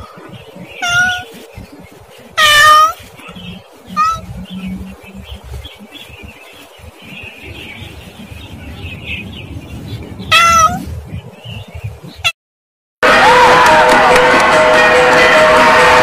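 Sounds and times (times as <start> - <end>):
faint low rumble: 0.0 - 12.3
cat meowing: 0.8 - 1.3, 2.4 - 3.0, 3.9 - 4.3, 10.3 - 10.8.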